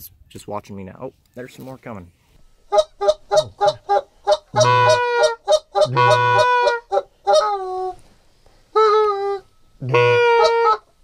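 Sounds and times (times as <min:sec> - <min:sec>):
goose call clucks and notes: 0:02.7 - 0:08.0, 0:08.7 - 0:11.0.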